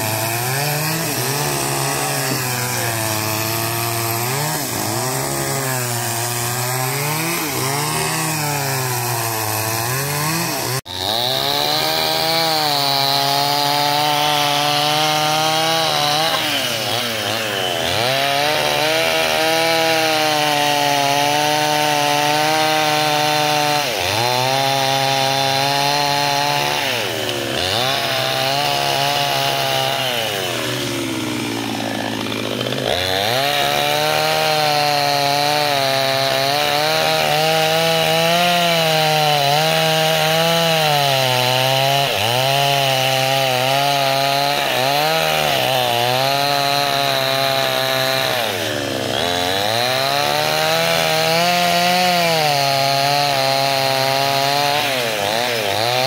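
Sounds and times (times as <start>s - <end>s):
chainsaw cutting wood: 0.0s - 56.0s.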